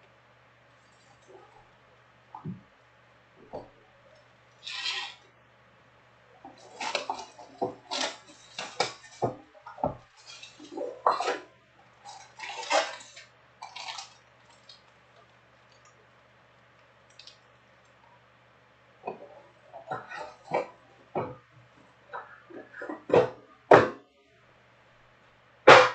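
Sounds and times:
plastic wrap crinkling: 6.5s - 11.4s, 12.0s - 15.9s.

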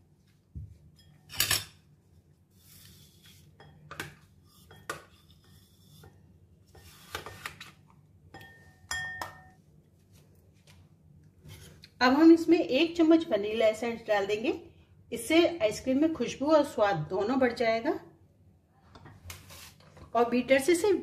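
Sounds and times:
spoon clinking on glass bowl: 8.3s - 9.6s.

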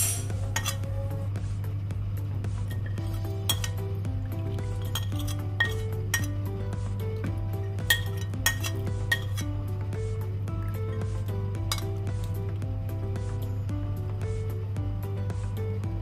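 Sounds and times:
background music: 0.0s - 16.0s
steady low hum: 0.0s - 16.0s
ceramic plate clinking on pot: 2.7s - 3.8s, 4.8s - 6.4s, 7.7s - 9.5s.

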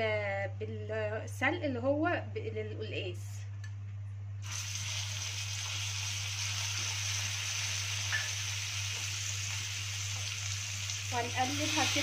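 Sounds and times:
greens sizzling in frying pan: 4.4s - 12.0s.

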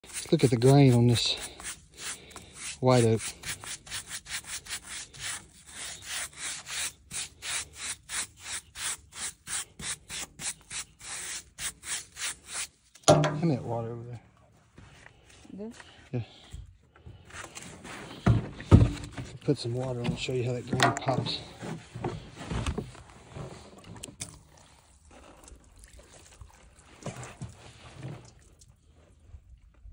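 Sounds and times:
brush scrubbing wood: 0.0s - 12.8s.

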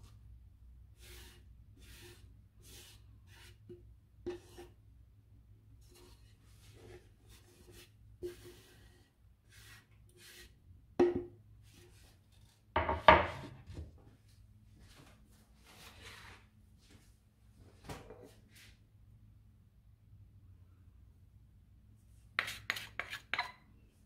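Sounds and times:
food rustling and scraping in dish: 5.8s - 10.6s, 11.6s - 14.0s, 15.6s - 17.0s, 22.1s - 23.7s.

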